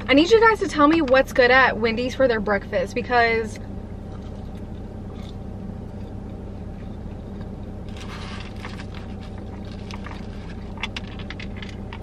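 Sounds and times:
low hum in car cabin: 0.0 - 12.0
chewing french fry: 4.1 - 12.0
foil wrapper crackling: 7.8 - 12.0.

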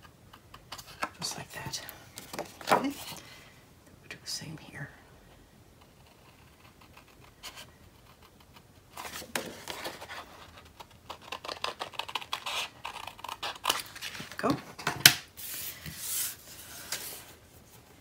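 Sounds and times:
cardstock scratchy clicks and rustles: 5.8 - 14.5.

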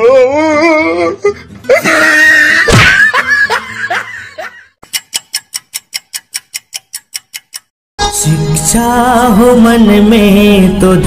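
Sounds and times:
fast sharp ticking: 4.8 - 7.7.

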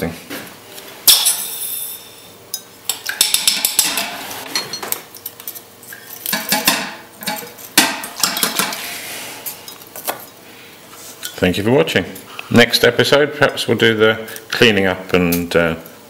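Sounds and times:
metal tools clinking and scraping: 1.1 - 6.6.

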